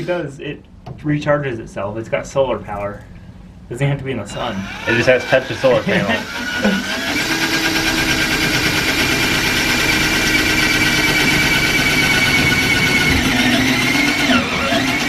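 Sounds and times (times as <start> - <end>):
drill whining through metal: 4.6 - 15.0.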